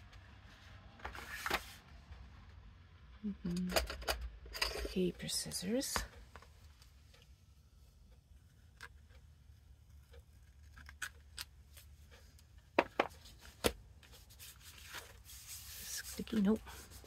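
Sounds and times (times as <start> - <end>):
paper rustling: 13.3 - 17.0.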